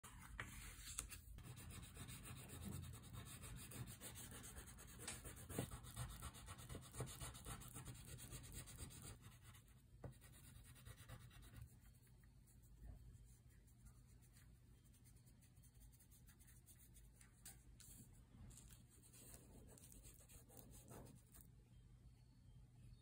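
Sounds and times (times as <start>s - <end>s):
crayon scribbling on paper: 1.4s - 12.0s.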